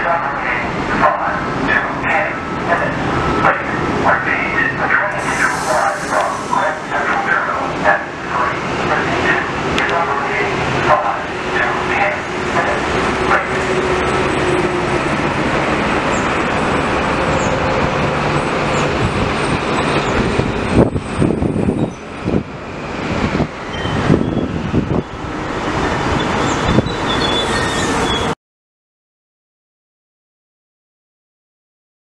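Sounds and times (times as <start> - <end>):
train clunks and clatter: 0.0 - 28.3
train wheels rumbling on rail: 0.0 - 28.4
faint high squeals: 26.4 - 28.3.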